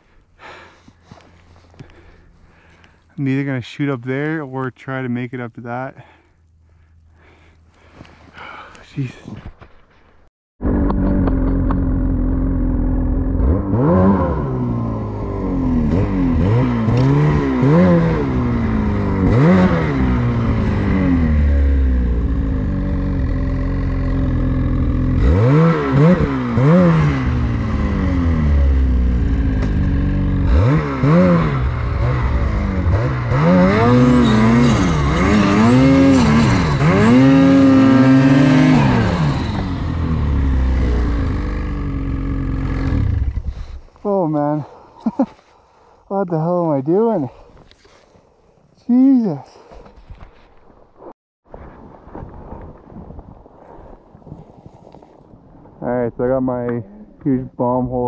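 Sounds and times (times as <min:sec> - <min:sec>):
snowmobile engine revving: 0:10.6 - 0:45.5.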